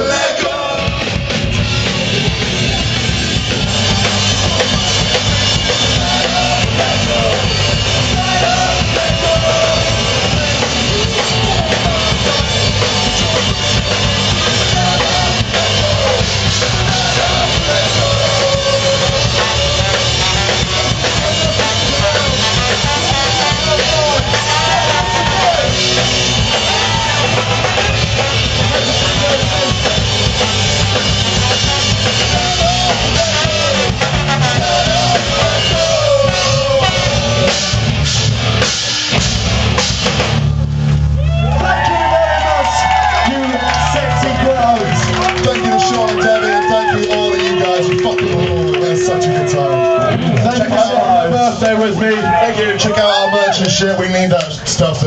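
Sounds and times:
guitars: 0:00.0 - 0:52.9
drum kit: 0:00.0 - 0:55.0
saxophone: 0:03.2 - 0:38.0
trombone: 0:30.5 - 0:37.9.

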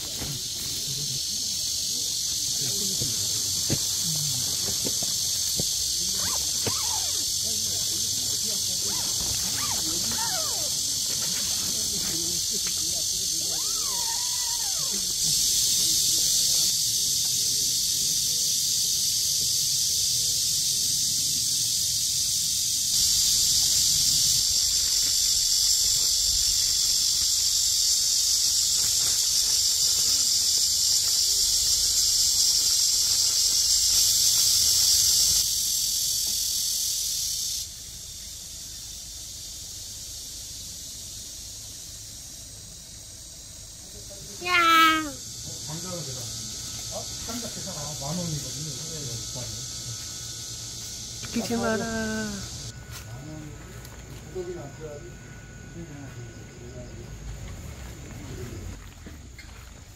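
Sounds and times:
insects buzzing: 0:00.0 - 0:59.9.

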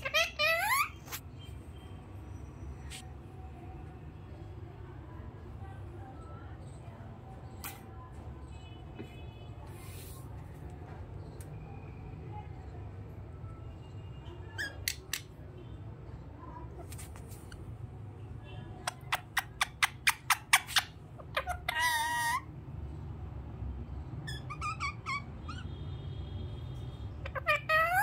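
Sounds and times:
parakeet squawking: 0:00.0 - 0:01.2, 0:18.8 - 0:22.5, 0:24.2 - 0:25.7, 0:27.2 - 0:28.0
parakeet chirping: 0:00.0 - 0:01.5, 0:18.8 - 0:22.5, 0:24.2 - 0:25.8, 0:27.2 - 0:28.0.

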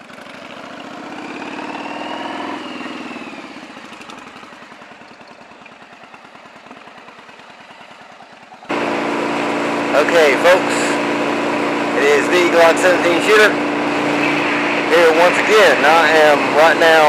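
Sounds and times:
motorcycle engine running: 0:00.0 - 0:17.0
faint high whine: 0:09.9 - 0:17.0.

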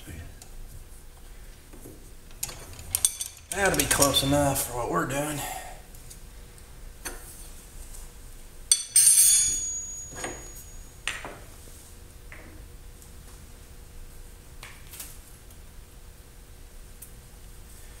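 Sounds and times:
ringing metallic clink: 0:08.7 - 0:10.9.

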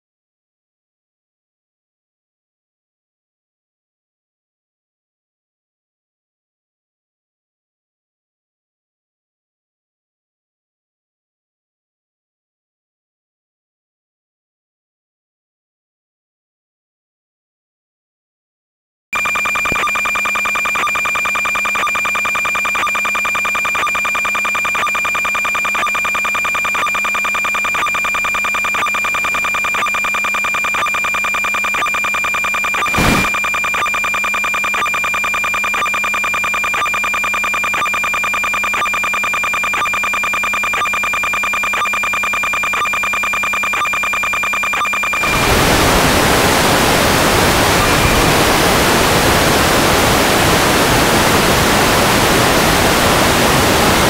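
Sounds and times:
pulsing electronic buzz: 0:19.2 - 0:54.0
loud static hiss: 0:32.9 - 0:33.3, 0:45.2 - 0:54.0.

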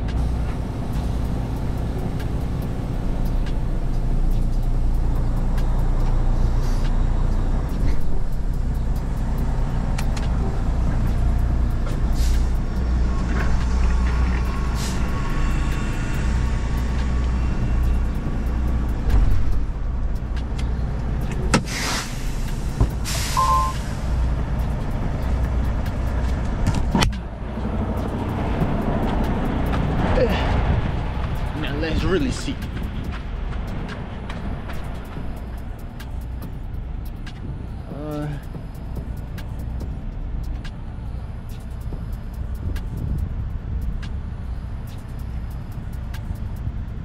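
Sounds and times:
diesel engine idling: 0:00.0 - 0:47.0
air brake hisses: 0:06.5 - 0:06.9, 0:12.1 - 0:12.6, 0:14.7 - 0:15.2, 0:21.6 - 0:24.2
short beep: 0:23.3 - 0:23.8.

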